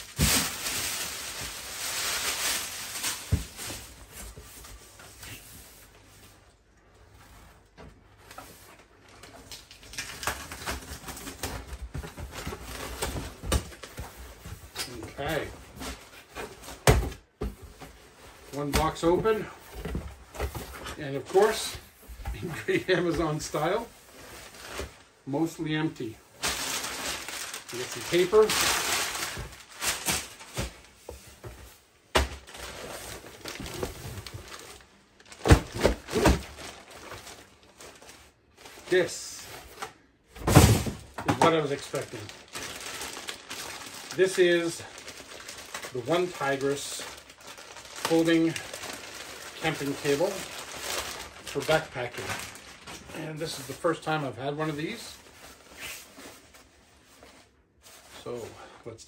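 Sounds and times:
cardboard crackling and ripping: 26.4 - 30.9, 40.5 - 53.8.

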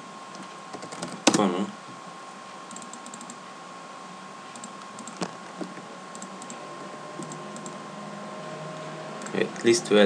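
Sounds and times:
computer mouse and keyboard clicks: 0.3 - 1.5, 2.7 - 3.4, 4.5 - 6.6, 7.2 - 7.8, 9.2 - 9.4.

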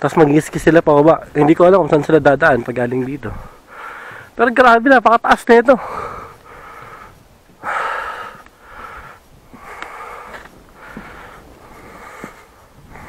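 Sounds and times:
person breathing heavily: 3.3 - 4.4, 5.7 - 13.0.

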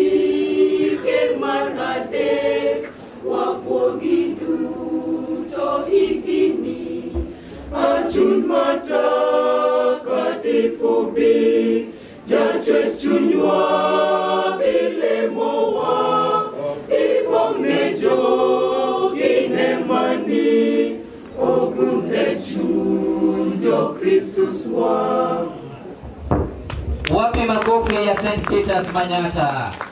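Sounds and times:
mixed choir singing a cappella: 0.0 - 26.2.

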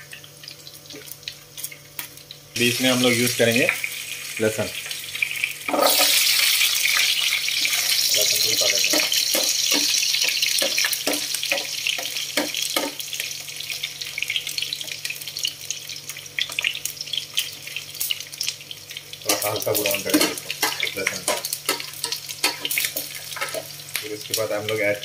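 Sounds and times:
oil sizzling with popping seeds: 0.0 - 25.0
spatula knocking in pan: 8.8 - 13.0, 19.3 - 23.7.

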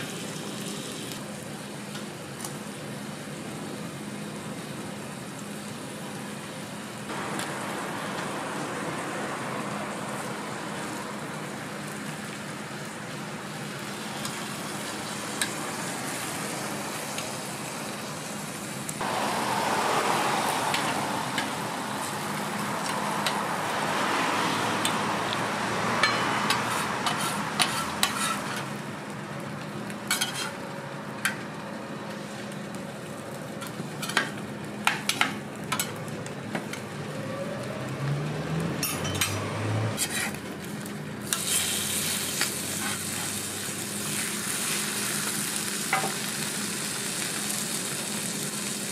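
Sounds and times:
food sizzling on a griddle: 0.0 - 48.9
metal utensils clicking on griddle: 26.0 - 28.7, 30.1 - 30.6, 33.6 - 36.9, 38.8 - 39.4.

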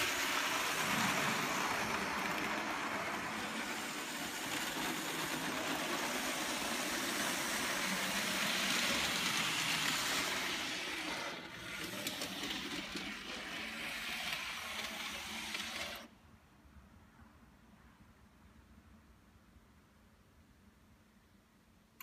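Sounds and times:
model trains whirring and rattling: 0.0 - 16.1.

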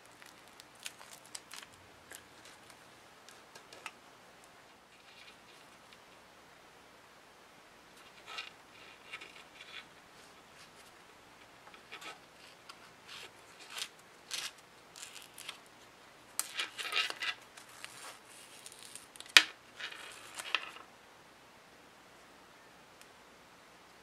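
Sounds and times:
scratchy rubbing of watch strap: 11.9 - 15.6.

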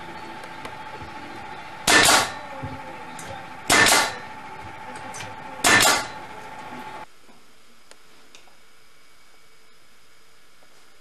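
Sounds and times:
pneumatic nailer firing: 1.8 - 2.6, 3.2 - 4.3, 4.9 - 6.3.

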